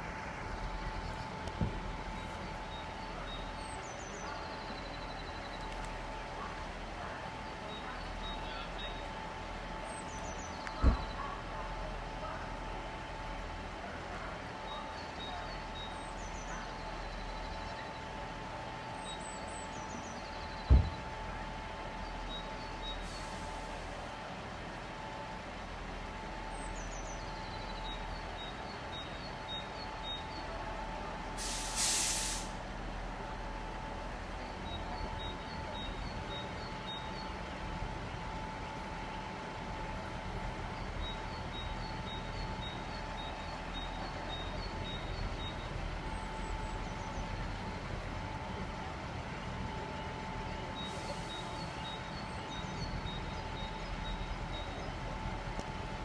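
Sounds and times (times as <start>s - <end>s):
diesel train engine idling: 0.0s - 56.0s
air brake hiss: 23.0s - 23.9s, 31.4s - 32.6s, 50.8s - 51.6s.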